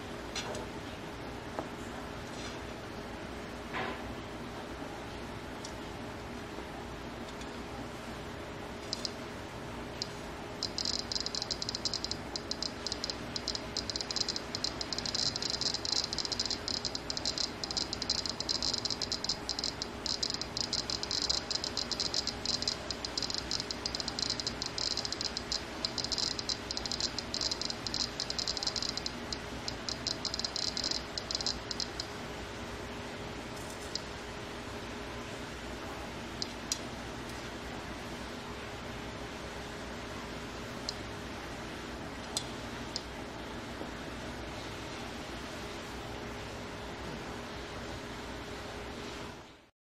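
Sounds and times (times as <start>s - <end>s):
radiation detector buzzer clicking: 8.8s - 9.2s, 10.0s - 32.1s, 33.7s - 34.1s.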